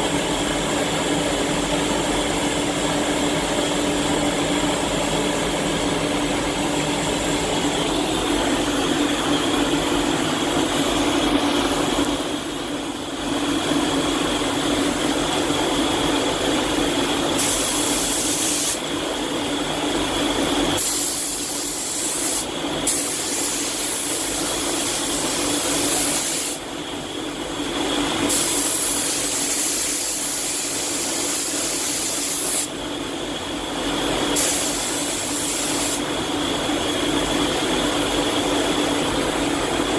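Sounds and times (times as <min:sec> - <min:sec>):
spray gun hissing: 0:17.4 - 0:18.8, 0:20.8 - 0:26.6, 0:28.3 - 0:32.7, 0:34.4 - 0:36.0.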